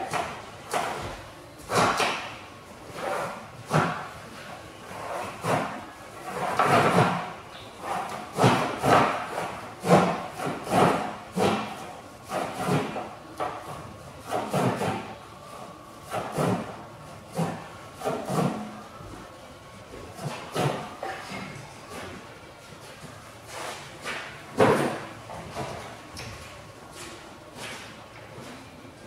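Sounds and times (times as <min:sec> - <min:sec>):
knocks and rubbing on wood: 0:03.0 - 0:04.2, 0:05.2 - 0:15.1, 0:20.1 - 0:22.0, 0:23.6 - 0:25.9.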